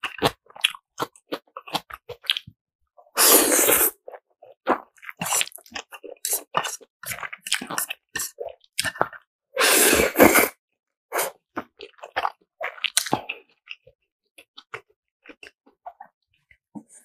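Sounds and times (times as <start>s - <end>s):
chewing with wet mouth clicks: 0.0s - 2.6s, 4.1s - 9.2s, 11.6s - 16.1s
loud slurp of noodles: 3.1s - 4.0s, 5.2s - 5.6s, 9.6s - 11.4s.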